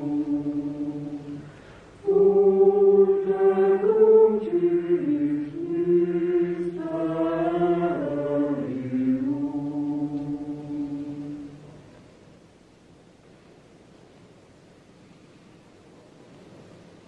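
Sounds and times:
choir chanting: 0.0 - 11.8.

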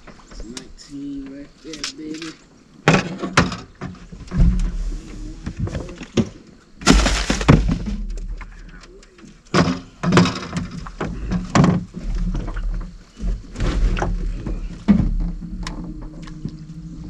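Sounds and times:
hard knocks: 6.2 - 8.2.

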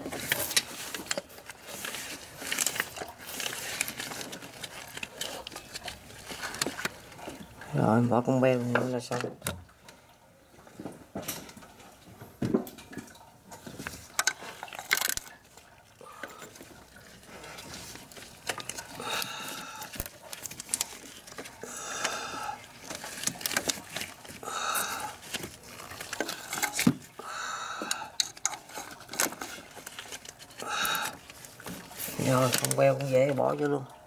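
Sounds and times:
hand tools clinking and scraping: 16.2 - 27.0, 27.9 - 33.8.

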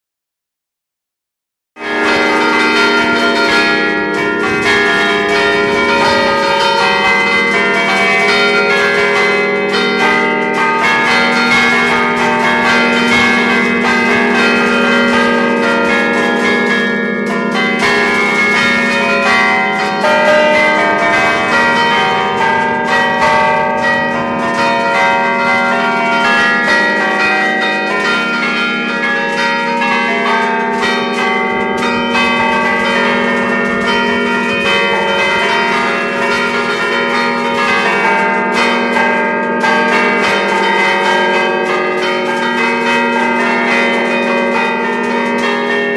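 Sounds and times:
church bells ringing: 1.8 - 45.9.

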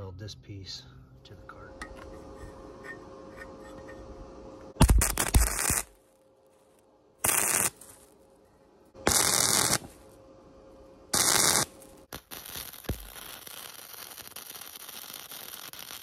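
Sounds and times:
welder arc crackling: 4.6 - 6.0, 7.2 - 8.2, 9.0 - 10.1, 11.1 - 16.0.

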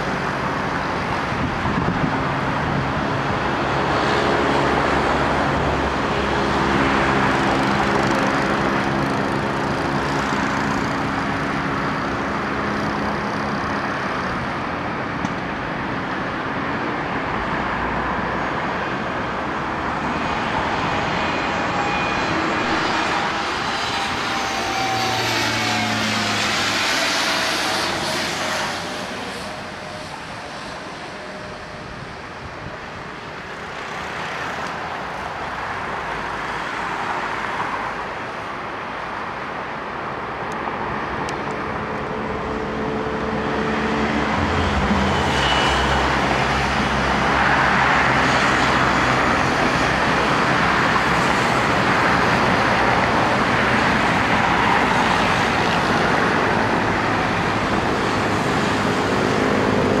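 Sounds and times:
turboprop aircraft landing: 0.0 - 60.0
low steady drone: 18.6 - 32.4.

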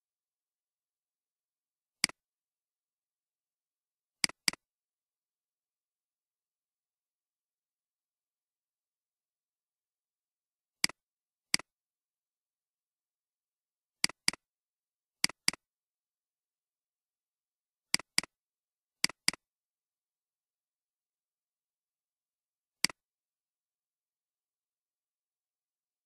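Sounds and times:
computer mouse clicks: 2.0 - 2.2, 4.2 - 4.6, 10.8 - 11.7, 14.0 - 14.4, 15.2 - 15.6, 17.9 - 18.3, 19.0 - 19.4, 22.8 - 23.0.

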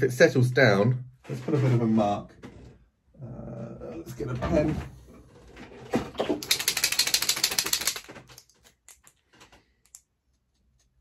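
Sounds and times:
paint marker ball rattling: 6.3 - 9.2.

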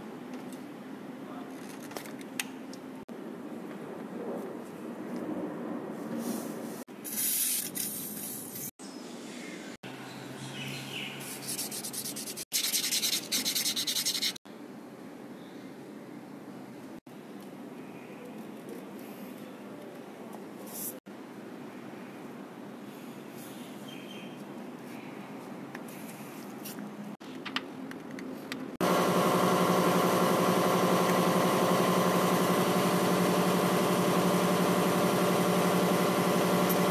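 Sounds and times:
sandpaper rasping on metal: 11.2 - 14.4
loud mechanical engine drone: 28.8 - 36.9.

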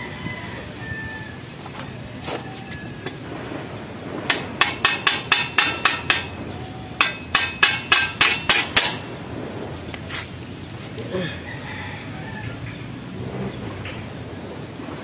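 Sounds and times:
hammer tapping on metal: 4.3 - 6.4, 7.0 - 9.0.

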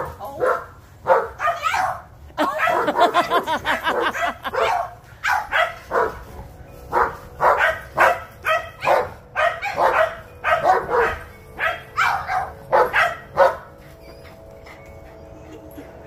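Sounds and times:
dogs barking and yapping: 0.0 - 16.0.

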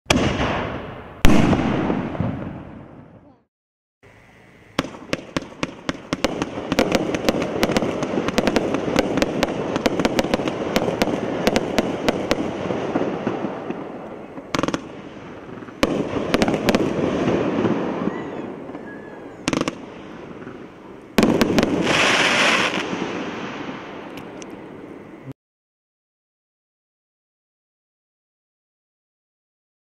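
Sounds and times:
fireworks launch shots: 0.1 - 3.3, 4.7 - 24.6
fireworks bursts rumbling: 0.1 - 3.4, 4.0 - 25.3
loud fireworks reports: 0.1 - 3.5, 4.4 - 25.2.

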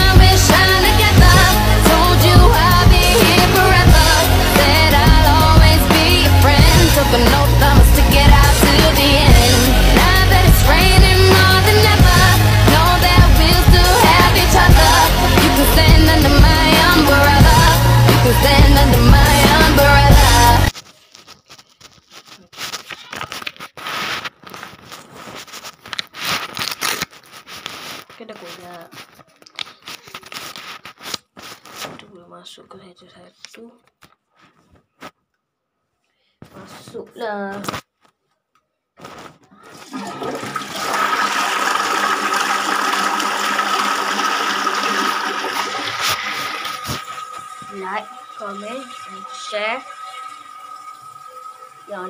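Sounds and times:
water rushing into toilet bowl: 0.4 - 20.7, 39.7 - 52.0
face mask crumpling and tearing: 20.7 - 32.0
toilet flush click: 39.9 - 51.8.

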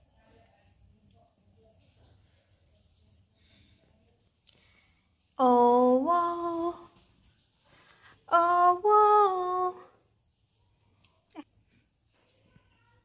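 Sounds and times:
woman sing-song calling: 5.4 - 7.0, 8.3 - 10.0.

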